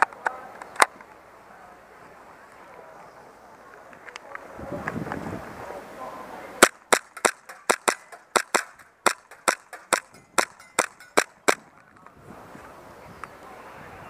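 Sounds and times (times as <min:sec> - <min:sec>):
airsoft pistol firing rapidly: 0:06.6 - 0:11.7.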